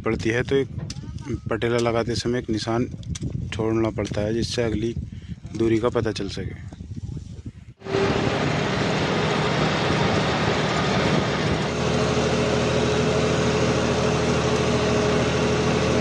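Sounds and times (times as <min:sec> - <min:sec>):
steady whine: 0:07.8 - 0:16.0
tractor diesel engine running: 0:07.8 - 0:16.0.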